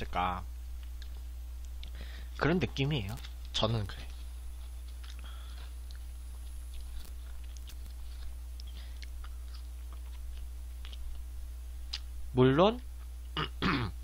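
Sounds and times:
low electrical hum: 0:00.0 - 0:14.0
soft crunchy clicks: 0:00.6 - 0:02.0, 0:03.0 - 0:12.2
person chewing food: 0:00.8 - 0:02.0, 0:04.1 - 0:12.1.

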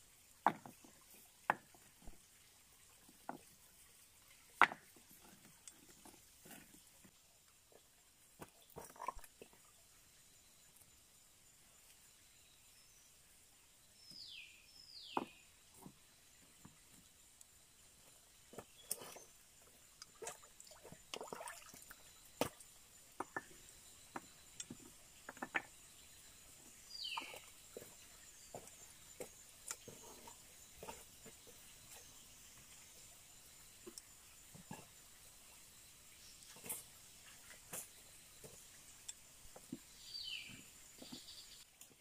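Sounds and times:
small water splashes: 0:08.3 - 0:09.8, 0:18.5 - 0:22.8
stones clacking: 0:23.2 - 0:25.8.

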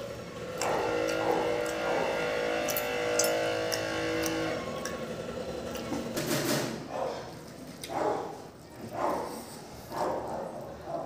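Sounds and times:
wet chewing and lip-smacking: 0:00.0 - 0:06.2, 0:07.4 - 0:09.5.

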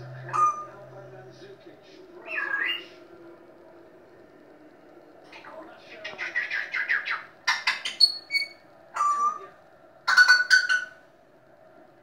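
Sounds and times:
parrot squawking: 0:00.2 - 0:00.8, 0:02.2 - 0:02.9, 0:05.3 - 0:11.0
parrot whistle: 0:06.8 - 0:09.4.

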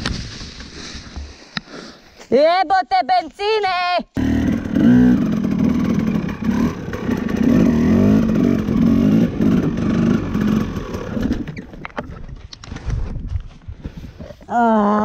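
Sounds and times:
dirt bike engine revving: 0:04.2 - 0:11.8.

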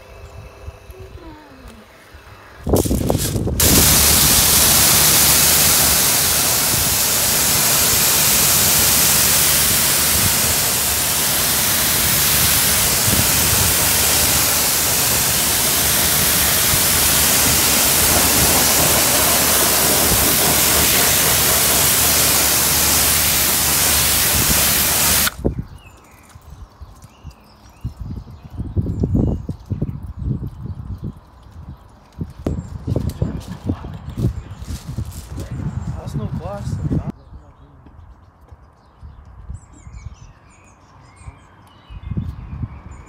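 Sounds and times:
pressure washer spraying water: 0:02.8 - 0:25.4.

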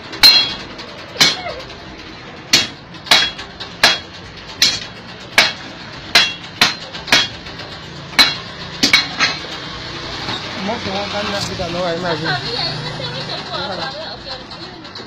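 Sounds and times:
hammer striking metal on anvil: 0:00.1 - 0:01.7, 0:02.5 - 0:10.4.

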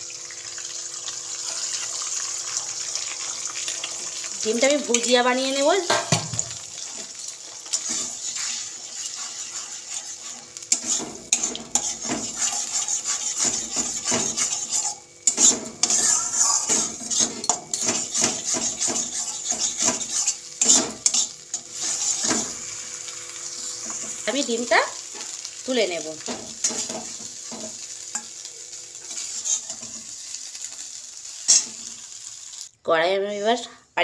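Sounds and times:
eggs sizzling in oil: 0:00.0 - 0:32.8
metal spatula scraping pan: 0:05.6 - 0:22.7, 0:26.2 - 0:30.3, 0:31.4 - 0:32.0.

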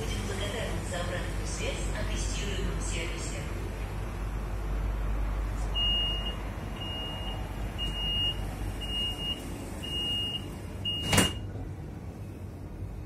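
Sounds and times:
train low rumble: 0:00.0 - 0:13.0
high warning beeps: 0:05.8 - 0:11.4
train doors thudding shut: 0:10.9 - 0:11.5.

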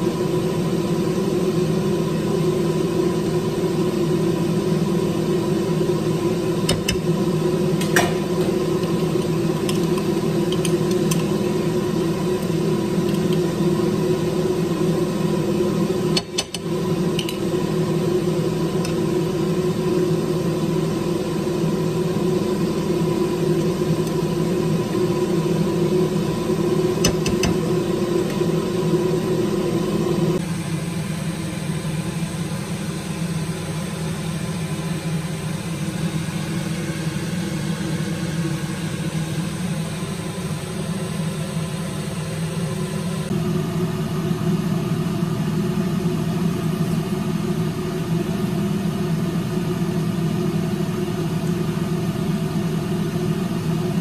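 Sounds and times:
motor hum: 0:00.0 - 0:30.4.

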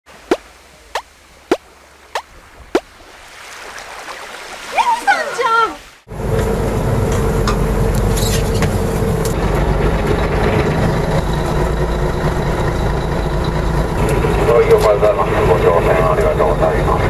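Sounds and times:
boat engine low rumble: 0:06.0 - 0:17.0.

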